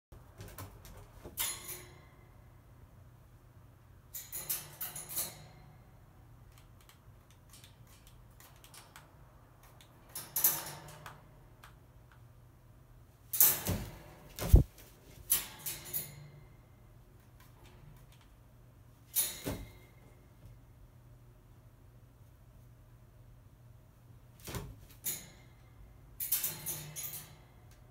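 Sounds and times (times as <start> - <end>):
bird feet rattling on metal grid: 4.1 - 5.8, 10.0 - 11.2, 13.3 - 16.5, 19.1 - 20.0, 24.8 - 25.6, 26.2 - 27.6.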